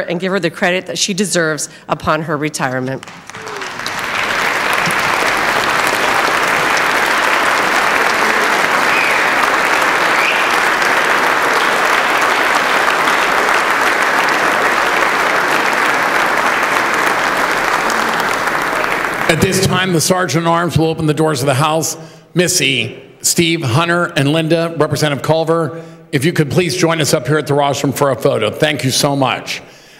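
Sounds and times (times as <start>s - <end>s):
large crowd applauding: 3.0s - 20.2s.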